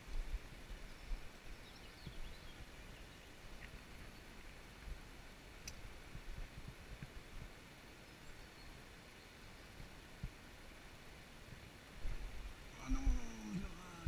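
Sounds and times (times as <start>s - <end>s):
stream running over stones: 0.0s - 14.0s
low microphone rumbles: 12.0s - 13.8s.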